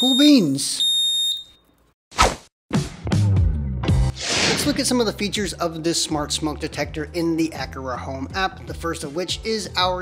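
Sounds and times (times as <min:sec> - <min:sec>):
background music with light beat: 0:02.7 - 0:10.0
whoosh transition: 0:04.1 - 0:04.9.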